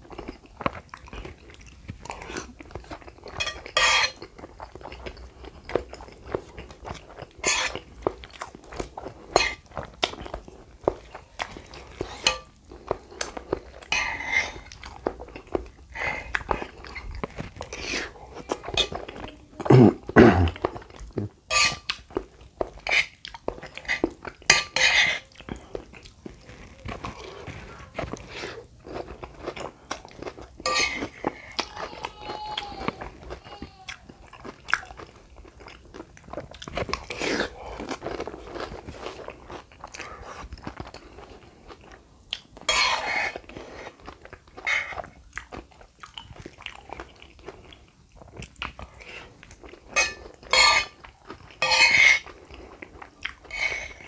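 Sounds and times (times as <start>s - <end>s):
wet chewing and crunching: 0.0s - 54.0s
metal spoon clinking on plate: 3.4s - 4.2s, 12.2s - 12.5s, 21.5s - 21.9s, 50.0s - 51.0s, 51.6s - 52.2s.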